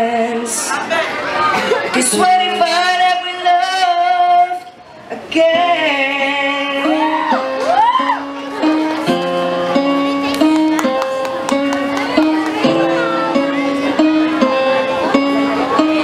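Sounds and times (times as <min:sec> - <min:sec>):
young man singing: 0:00.0 - 0:01.2, 0:01.8 - 0:07.7
electronic keyboard chords: 0:05.5 - 0:16.0.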